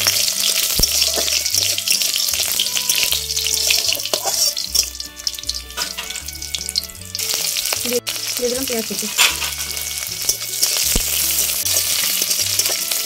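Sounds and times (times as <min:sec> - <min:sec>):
spatula stirring in metal pan: 0:00.0 - 0:13.0
spices sizzling in hot oil: 0:00.0 - 0:13.0.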